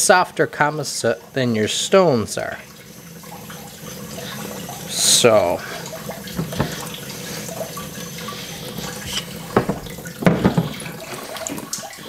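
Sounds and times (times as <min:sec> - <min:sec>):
tap water running into sink: 0:00.1 - 0:12.0
sharp knocks: 0:09.5 - 0:10.9.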